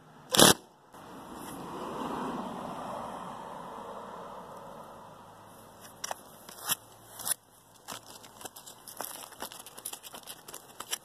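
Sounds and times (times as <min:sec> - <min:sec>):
bitumen underlayment crackling: 0:04.5 - 0:11.0.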